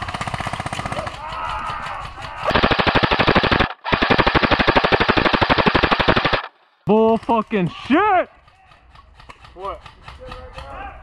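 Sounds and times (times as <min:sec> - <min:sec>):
airsoft gun firing full-auto: 0:00.0 - 0:06.6
distant airsoft gunfire: 0:00.0 - 0:06.6
distant shout: 0:00.9 - 0:02.6, 0:10.4 - 0:11.0.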